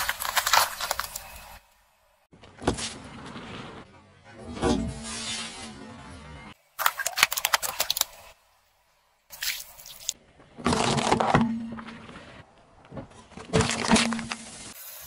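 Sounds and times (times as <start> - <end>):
metal can being crushed: 0.0 - 1.3, 6.8 - 8.1, 13.5 - 14.4
carrots crunching under tyre: 0.0 - 1.6.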